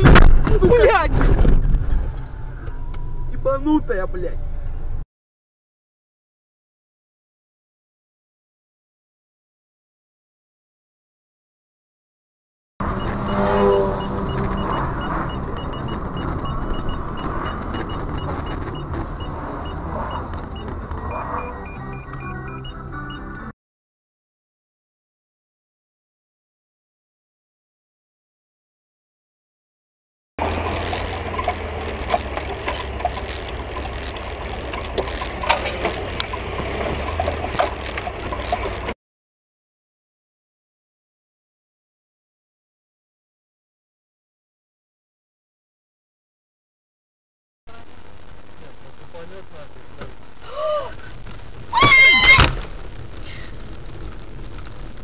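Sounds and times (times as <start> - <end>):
car road and engine noise: 0.0 - 5.0, 12.8 - 23.6, 30.4 - 39.0, 47.7 - 55.0
short high-pitched beeps: 12.9 - 23.4
small clicks and rattles: 30.4 - 38.9.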